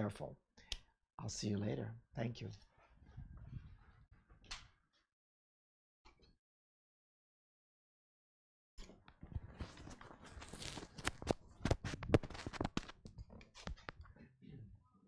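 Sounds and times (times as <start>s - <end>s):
rustling close to microphone: 9.2s - 14.0s.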